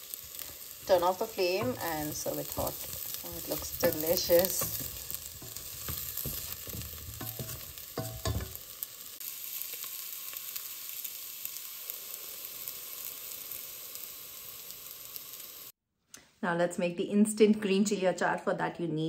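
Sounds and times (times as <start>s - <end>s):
oil sizzling: 0.0s - 15.8s
spatula scraping metal pan: 0.9s - 8.6s.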